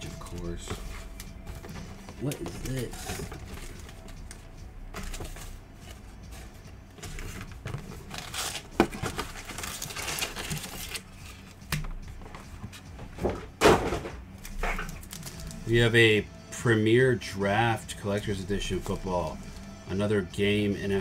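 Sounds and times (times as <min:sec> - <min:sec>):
cardboard and foil packs rustling: 0:00.0 - 0:15.8.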